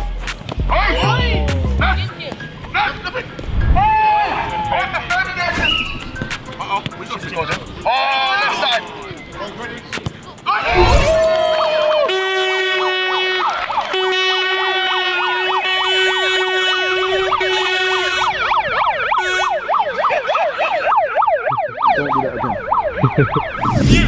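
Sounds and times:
megaphone siren: 12.7s - 24.0s.

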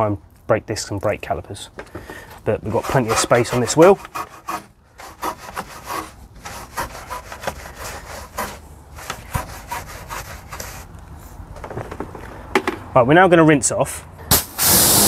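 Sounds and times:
brush scrubbing inside wheel: 2.6s - 10.9s.

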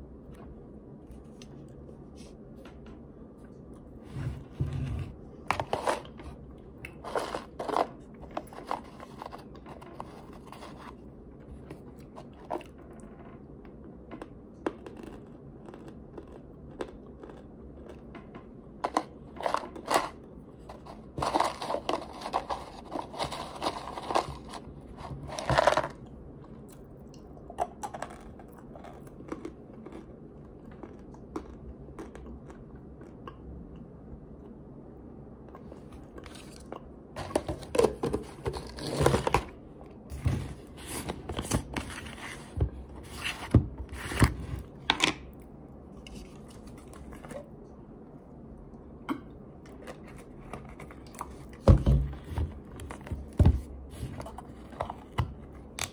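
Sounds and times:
chewing squeaky crunches: 14.8s - 18.0s.

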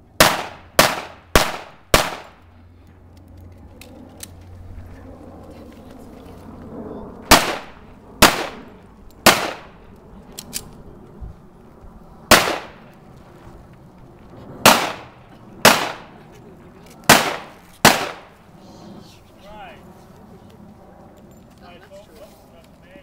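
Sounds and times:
pistol shots with echo: 0.2s - 2.4s, 7.3s - 9.8s, 12.3s - 12.8s, 14.6s - 16.1s, 17.1s - 18.3s.

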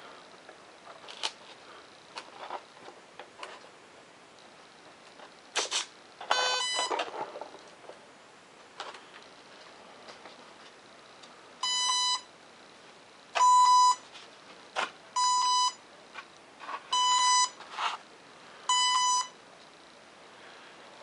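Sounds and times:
electronic beeps: 16.9s - 17.6s.

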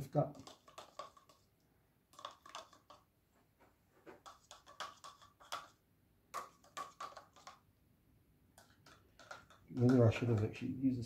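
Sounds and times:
stick tapping plastic cups: 0.0s - 3.1s, 4.1s - 7.7s, 8.5s - 10.7s.

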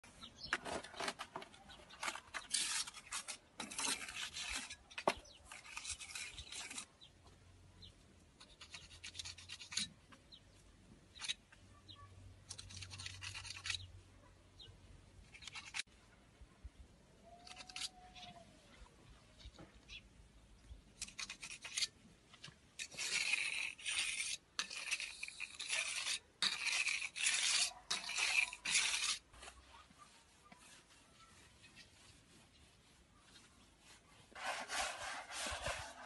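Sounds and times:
hand tool scratching mortar: 0.4s - 7.0s, 8.4s - 10.0s, 12.5s - 13.9s, 15.3s - 15.9s, 17.4s - 18.3s, 21.0s - 22.0s, 22.8s - 36.0s.

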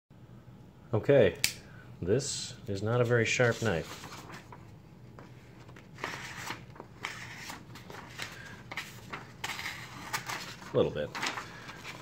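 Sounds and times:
knife cutting paper: 6.0s - 12.0s.

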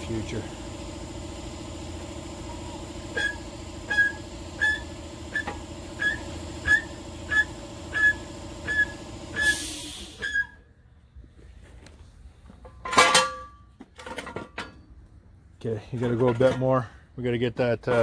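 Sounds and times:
steady mechanical hum: 0.0s - 18.0s
jack squeaking: 1.7s - 10.7s
brief hiss: 9.4s - 10.3s.

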